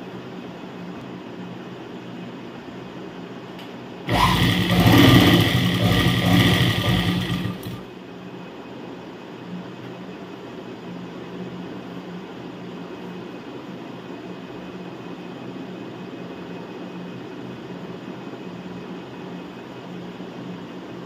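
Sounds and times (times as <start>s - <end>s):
sewing machine stitching: 4.1s - 7.9s.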